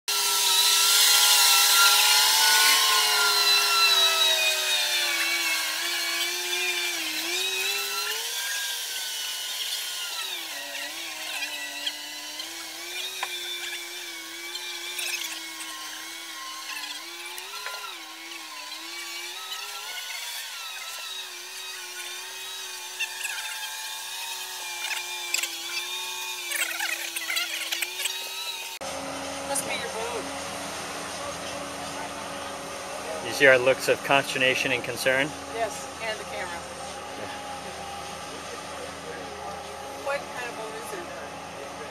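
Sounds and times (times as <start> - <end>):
travel lift drive whine: 24.4 - 41.9.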